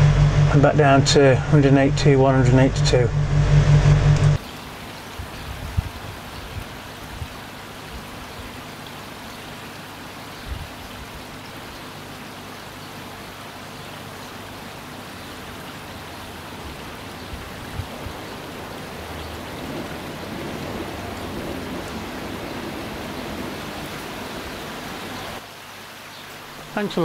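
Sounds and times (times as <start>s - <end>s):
soft low thumps: 0.0s - 4.4s
trickling splashing water: 4.4s - 27.0s.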